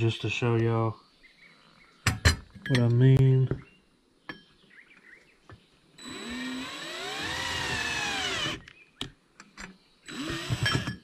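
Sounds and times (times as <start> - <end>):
power drill with hole saw: 6.0 - 8.7, 10.1 - 11.0.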